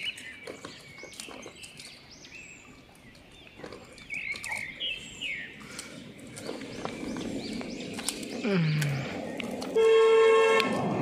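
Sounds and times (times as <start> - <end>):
clicks and rustles of feeding monkeys: 0.0 - 2.1, 2.9 - 4.8, 5.6 - 9.8
birds chirping: 0.0 - 11.0.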